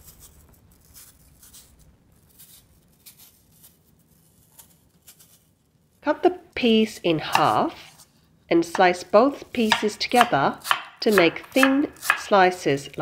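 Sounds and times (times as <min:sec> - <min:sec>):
knife scraping apple peel: 0:00.0 - 0:05.5, 0:09.4 - 0:13.0.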